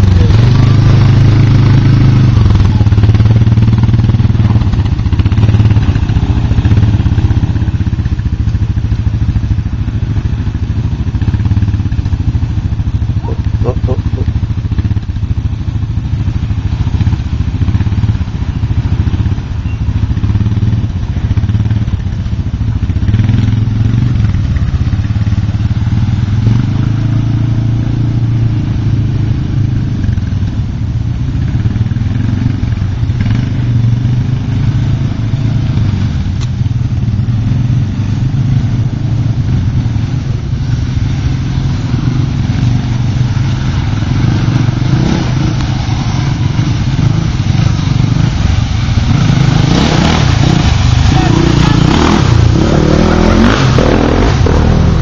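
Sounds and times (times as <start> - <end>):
quad engines revving: 0.0 - 7.9, 13.1 - 14.5, 40.8 - 55.0.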